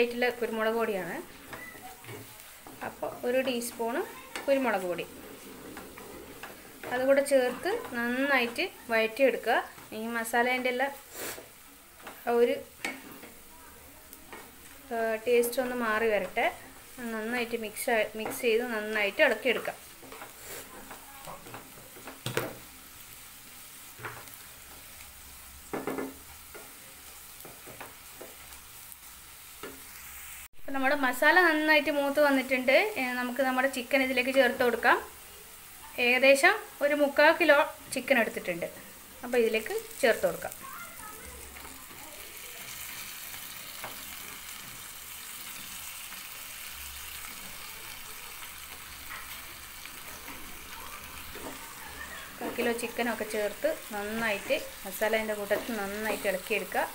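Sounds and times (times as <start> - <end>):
low sizzle of frying: 0.0 - 56.9
wooden spatula scraping a pan: 0.1 - 13.5, 15.5 - 22.7, 48.4 - 56.9
wooden spatula stirring chicken: 1.0 - 10.1, 47.4 - 53.0.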